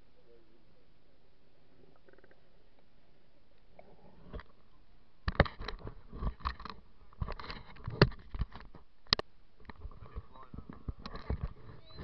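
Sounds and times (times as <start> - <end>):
camera being handled: 5.3 - 11.9.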